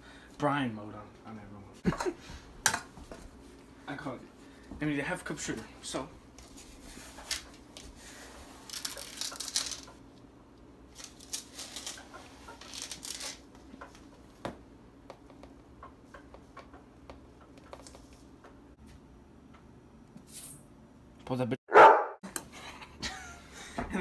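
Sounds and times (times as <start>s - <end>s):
sugar rustling: 6.4s - 10.0s, 10.9s - 13.5s.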